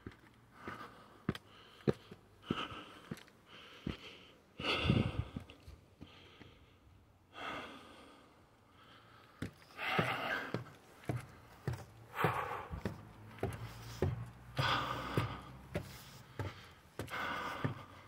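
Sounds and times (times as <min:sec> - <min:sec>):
person breathing heavily: 0:00.5 - 0:18.0.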